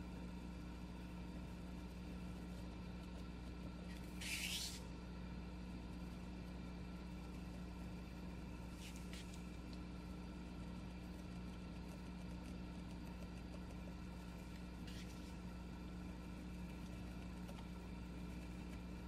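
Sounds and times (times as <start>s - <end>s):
low electrical hum: 0.0s - 19.0s
pen nib scratching paper: 3.9s - 4.8s, 10.8s - 15.5s.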